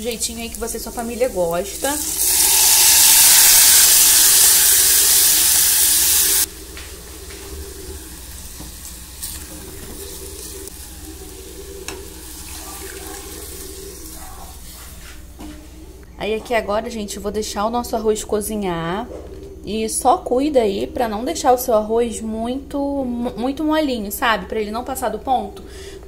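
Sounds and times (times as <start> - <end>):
rice sizzling in oil: 0.0 - 14.8.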